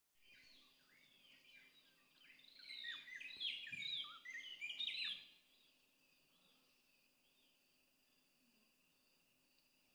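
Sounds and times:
birds whistling and chirping: 0.2 - 5.4.

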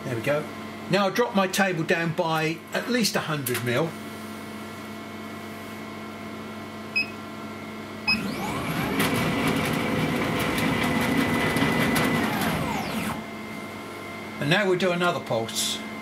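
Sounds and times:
stepper motor whine: 8.1 - 13.4.

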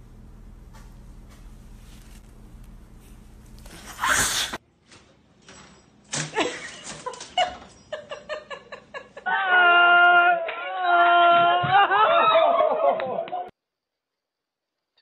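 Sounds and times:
cat hissing: 3.9 - 4.6
snickering laughter: 6.4 - 9.3.

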